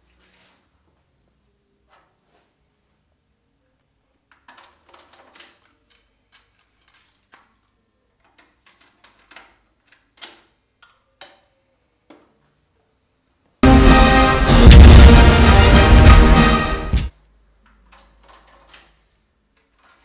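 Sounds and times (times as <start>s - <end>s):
loud music from stereo: 13.6s - 17.1s.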